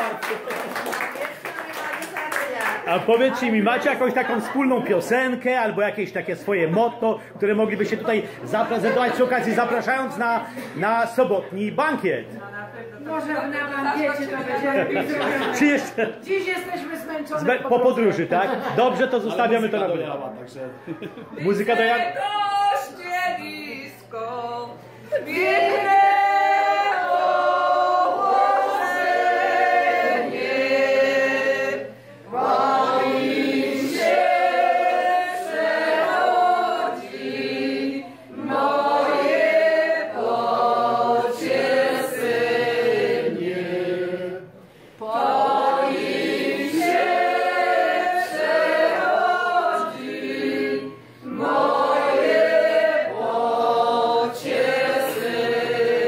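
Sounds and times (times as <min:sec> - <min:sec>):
group singing unaccompanied: 0:21.5 - 0:56.0.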